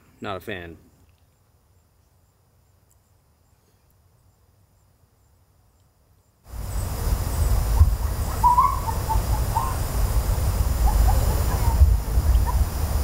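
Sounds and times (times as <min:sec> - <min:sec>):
low rumble with hiss: 0:06.5 - 0:13.0
faint short calls: 0:07.4 - 0:12.8.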